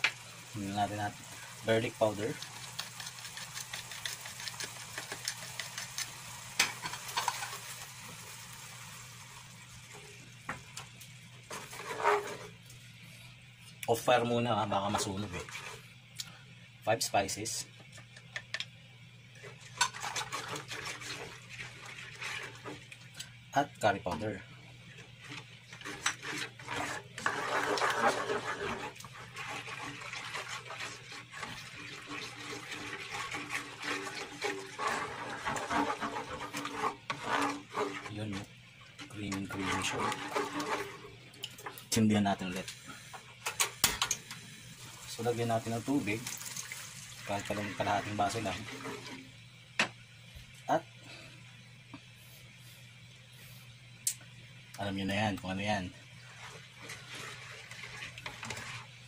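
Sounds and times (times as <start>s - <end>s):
sauce simmering and sizzling: 0.0s - 14.1s, 18.8s - 23.5s, 24.4s - 42.0s, 44.1s - 50.3s, 50.9s - 59.0s
spatula scraping frying pan: 11.5s - 12.6s, 25.3s - 38.4s, 39.3s - 41.2s, 56.2s - 59.0s.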